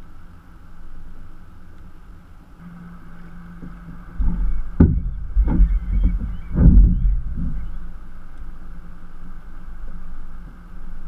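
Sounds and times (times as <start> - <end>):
low thuds through hull: 3.6 - 8.1.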